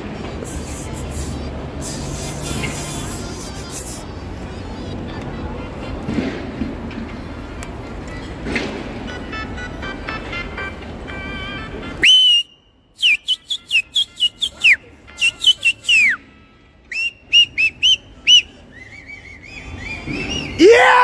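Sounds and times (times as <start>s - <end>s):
street noise: 0.0s - 21.0s
man whistling: 12.0s - 16.3s, 16.9s - 20.6s.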